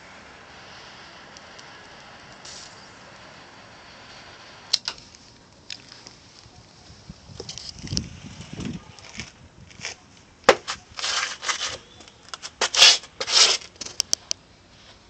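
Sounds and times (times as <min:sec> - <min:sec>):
shoe scraping on brick: 0:09.0 - 0:13.9.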